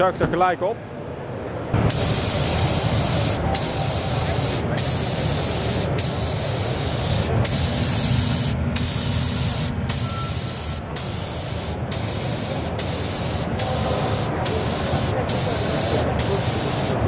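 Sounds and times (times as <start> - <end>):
spray gun hissing: 1.9 - 17.0.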